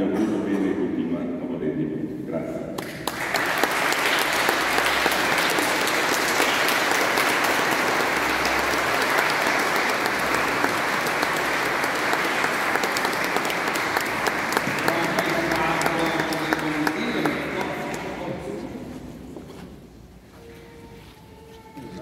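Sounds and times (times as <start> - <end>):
congregation clapping: 2.8 - 18.8
person speaking: 14.6 - 19.3.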